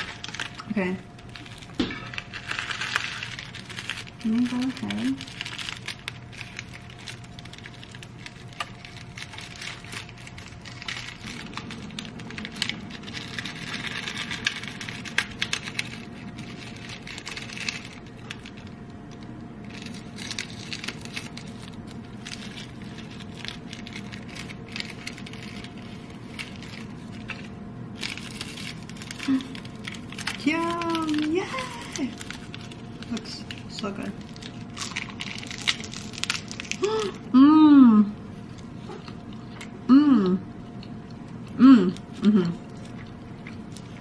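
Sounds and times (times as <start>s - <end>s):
plastic film crinkling: 0.0s - 37.3s, 42.0s - 44.0s
faint steady hum: 0.0s - 44.0s.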